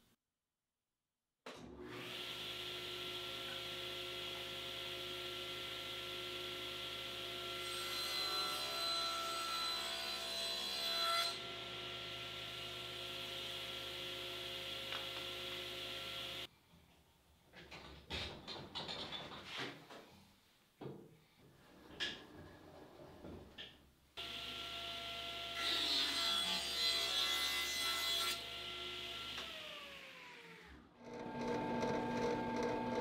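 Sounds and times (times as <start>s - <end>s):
table saw blade whining: 31.2s - 33.0s.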